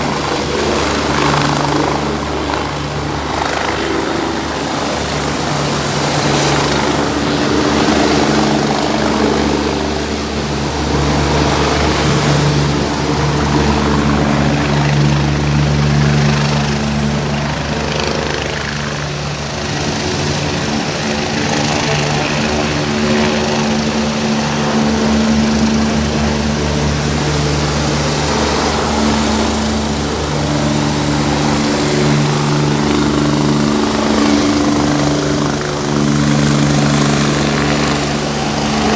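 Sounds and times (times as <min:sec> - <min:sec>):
cars passing: 0:00.0 - 0:38.9
helicopter engine and rotor drone: 0:00.0 - 0:38.9
motorbikes passing: 0:00.0 - 0:38.9.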